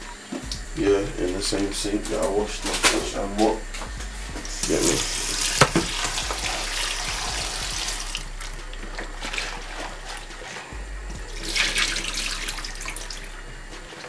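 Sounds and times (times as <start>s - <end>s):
tap water running into a tub: 4.4s - 14.0s
water splashing into sink: 4.8s - 8.2s.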